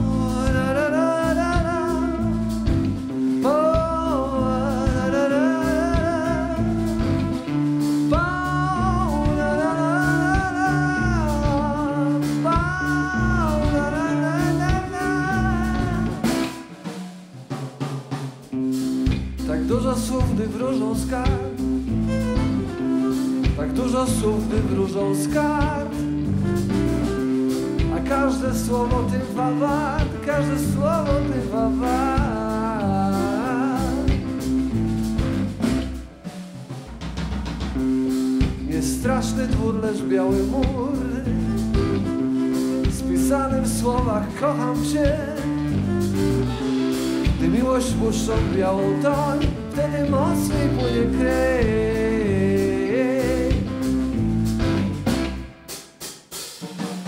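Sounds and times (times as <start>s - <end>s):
electric guitar: 0.0s - 16.9s, 18.5s - 36.2s
bass guitar: 0.0s - 55.8s
blues-rock band playing: 0.0s - 56.6s
drum kit: 0.0s - 57.0s
violin melody: 21.9s - 25.1s.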